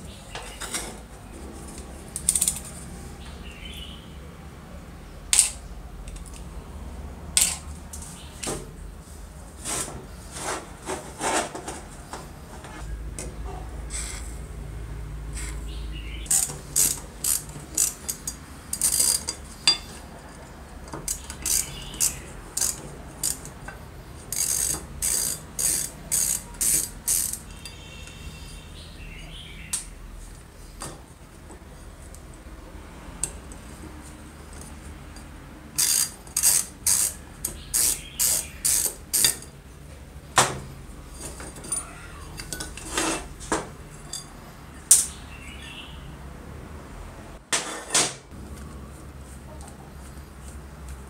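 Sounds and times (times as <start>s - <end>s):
hand tools clicking and scraping on metal: 0.3s - 2.9s, 7.3s - 8.6s, 9.5s - 12.8s, 16.3s - 28.6s, 33.2s - 39.6s, 41.0s - 45.2s.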